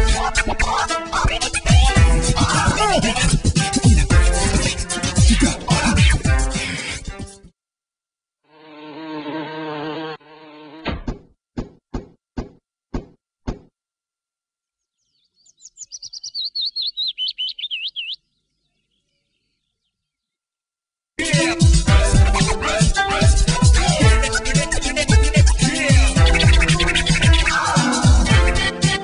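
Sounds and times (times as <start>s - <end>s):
warbling bird-like twittering chirp: 14.8s - 20.4s.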